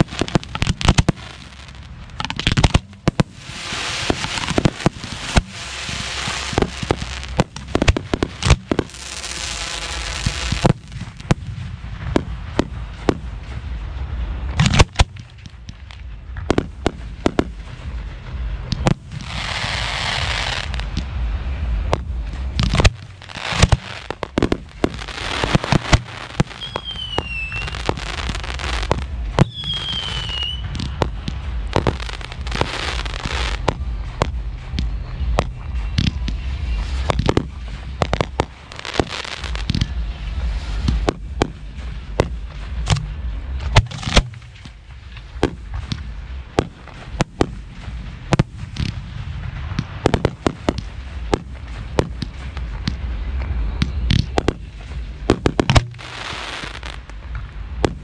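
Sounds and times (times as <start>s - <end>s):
firework bursts with crackling: 0.0s - 58.0s
falling whistles: 26.6s - 27.7s, 29.4s - 30.7s
firework launch thumps: 40.8s - 53.1s.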